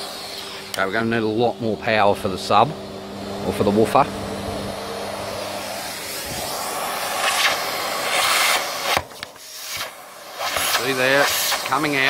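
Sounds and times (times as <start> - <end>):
vacuum cleaner suction whoosh: 1.8 - 12.0.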